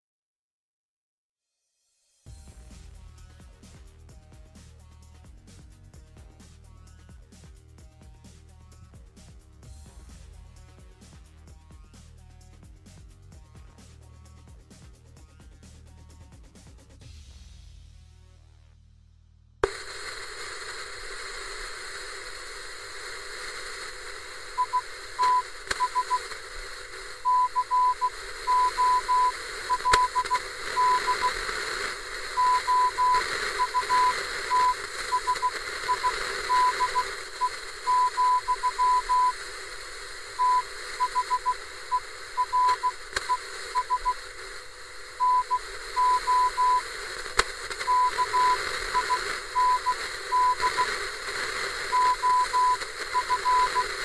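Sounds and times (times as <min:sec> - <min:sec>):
radio static hiss: 0:19.6 - 0:54.0
morse code beeps: 0:24.0 - 0:47.1, 0:47.7 - 0:54.0.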